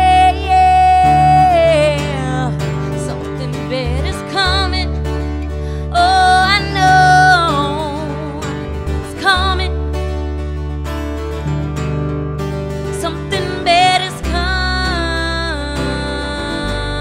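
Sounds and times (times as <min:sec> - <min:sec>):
singing voice: 0:00.0 - 0:05.1, 0:05.9 - 0:09.8, 0:13.0 - 0:17.0
guitar: 0:00.0 - 0:17.0
steady bass line: 0:00.0 - 0:17.0.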